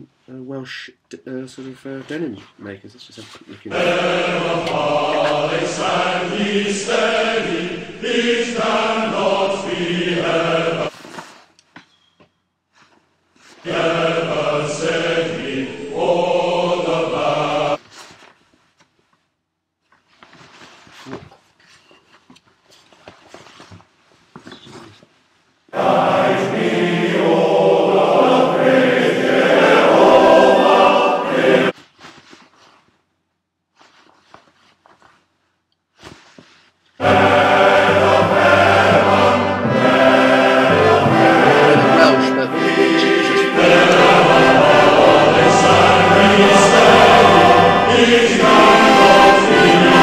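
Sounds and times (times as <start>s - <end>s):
male voice choir singing: 3.7s - 10.9s, 13.6s - 17.8s, 25.8s - 31.7s, 37.0s - 50.0s.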